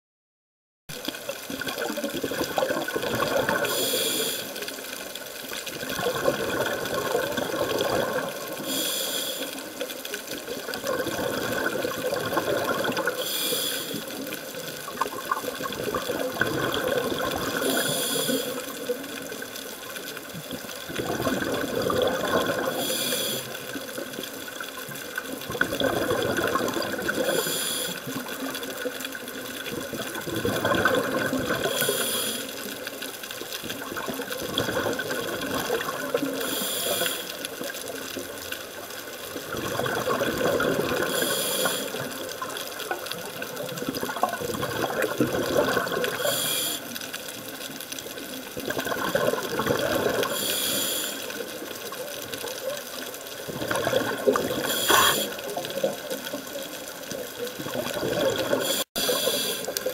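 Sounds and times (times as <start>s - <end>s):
exhaled bubbles gurgling: 0.9s - 59.9s
regulator inhalation hiss: 3.6s - 4.8s, 8.5s - 9.8s, 13.1s - 14.2s, 17.6s - 18.8s, 22.7s - 23.7s, 27.2s - 28.2s, 31.6s - 32.7s, 36.3s - 37.5s, 41.1s - 42.2s, 46.1s - 47.0s, 50.2s - 51.5s, 54.6s - 55.6s, 58.6s - 59.8s.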